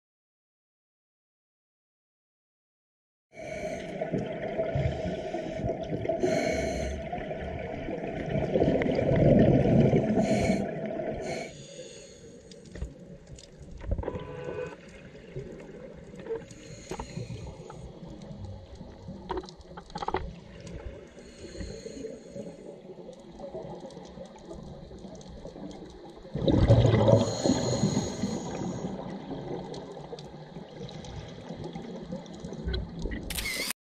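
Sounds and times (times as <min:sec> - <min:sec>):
underwater exhaled bubbles rushing: 0:03.4 - 0:12.2, 0:12.9 - 0:33.3
underwater hiss: 0:04.7 - 0:07.4, 0:09.9 - 0:12.8, 0:16.5 - 0:18.0, 0:21.2 - 0:22.8, 0:27.0 - 0:29.1
faint clicks: 0:12.2 - 0:21.0, 0:21.6 - 0:26.3.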